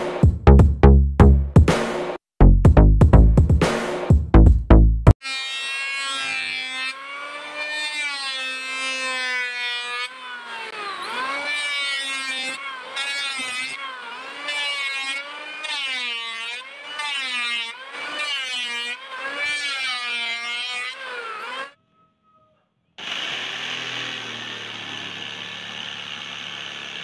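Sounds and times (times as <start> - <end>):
electric planer whining: 5.2 - 21.8, 23.0 - 27.0.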